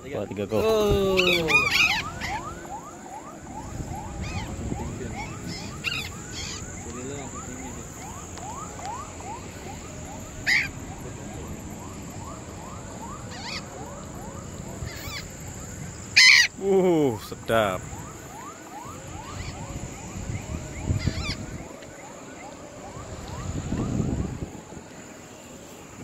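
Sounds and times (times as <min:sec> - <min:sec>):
harsh parrot calls: 0:00.6 - 0:02.6, 0:04.2 - 0:06.9, 0:10.4 - 0:10.8, 0:13.3 - 0:13.7, 0:14.8 - 0:15.4, 0:16.2 - 0:16.6, 0:20.9 - 0:21.5.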